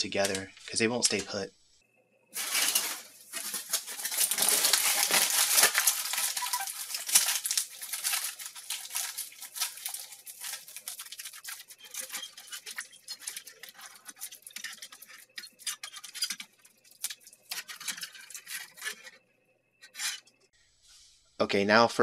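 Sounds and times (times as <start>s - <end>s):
aluminium foil crinkling: 2.4s - 19.2s.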